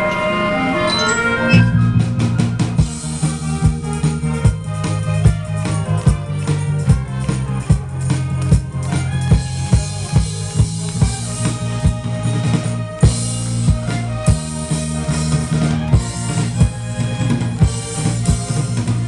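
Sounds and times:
wind band playing: 0.0 - 19.0
drum kit beat: 1.6 - 19.0.

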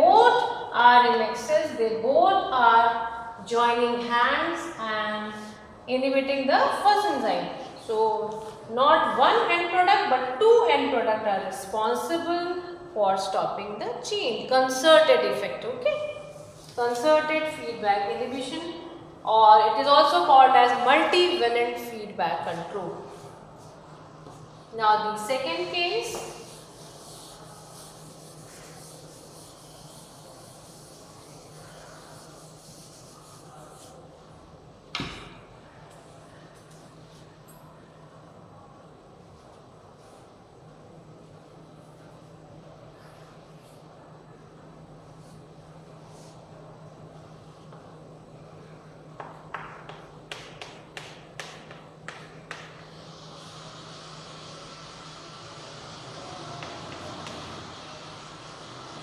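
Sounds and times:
low room hum: 0.0 - 59.0
chalk scratching on blackboard: 25.5 - 34.1, 49.9 - 59.0.

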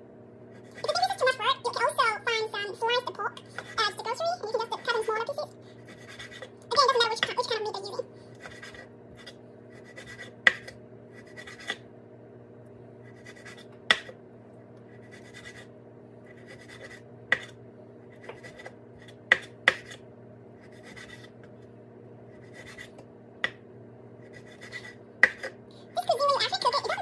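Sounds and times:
knife sawing through meat: 5.8 - 6.5, 8.4 - 10.4, 11.2 - 11.8, 14.9 - 15.7, 16.3 - 17.0.

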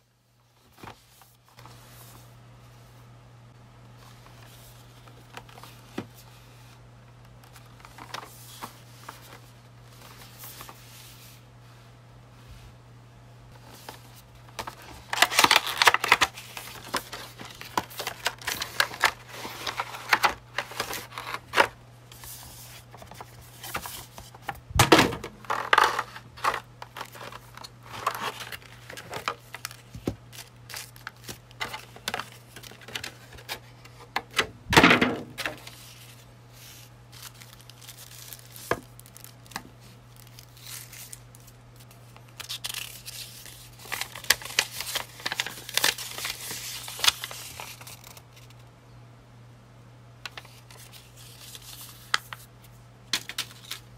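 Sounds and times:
paper leaflet rustling: 13.6 - 24.6, 25.4 - 34.1, 35.4 - 48.6, 50.3 - 52.5
plastic wrapping crinkling: 13.8 - 24.6, 25.3 - 33.6, 35.4 - 48.6.

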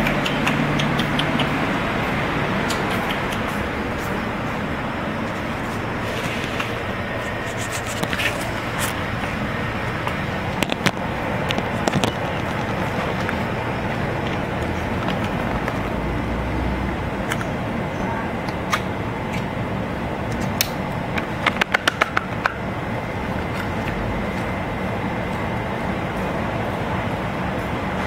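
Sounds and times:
sharp clicks: 0.0 - 1.6, 2.6 - 3.7
road traffic hum: 0.0 - 28.0.

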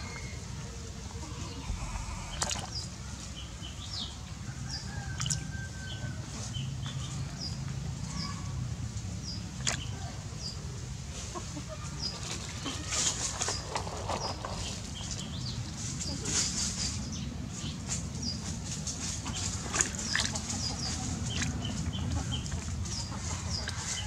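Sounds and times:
birds chirping: 0.0 - 5.2, 19.2 - 24.0
low rumble: 1.4 - 3.0.

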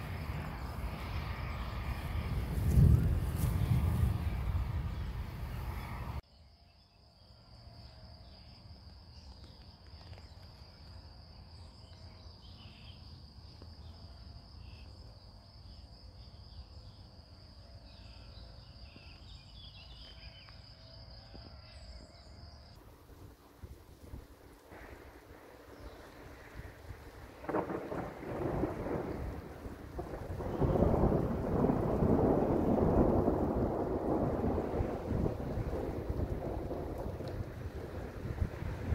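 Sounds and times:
low rumble: 0.0 - 6.2
crickets trilling: 0.0 - 38.9.

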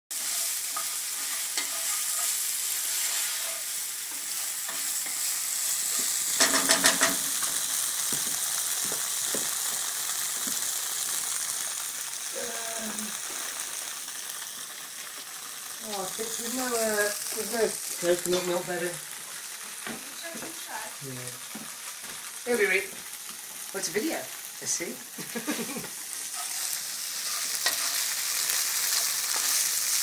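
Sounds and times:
spatula scraping a pan: 0.1 - 7.5, 26.1 - 30.0
tofu sizzling in oil: 0.1 - 30.0.

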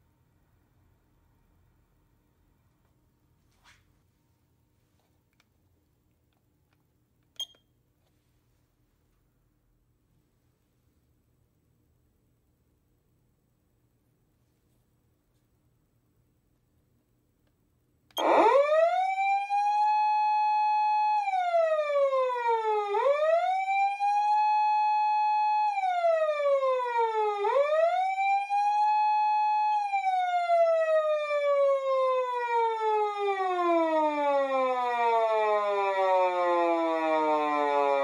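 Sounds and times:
electronic siren wail: 18.2 - 38.0.

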